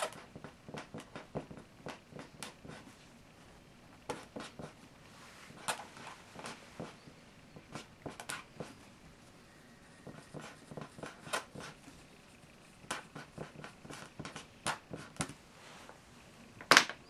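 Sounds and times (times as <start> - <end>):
felt-tip pens scratching on paper: 0.0 - 2.9, 4.1 - 4.8, 5.5 - 8.9, 9.9 - 12.0, 12.8 - 15.4.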